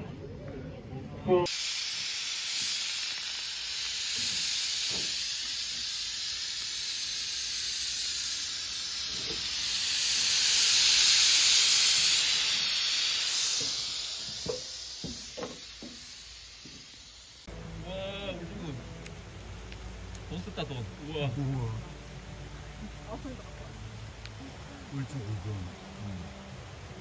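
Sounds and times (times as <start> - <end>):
pressure cooker steam hissing: 1.4 - 18.7.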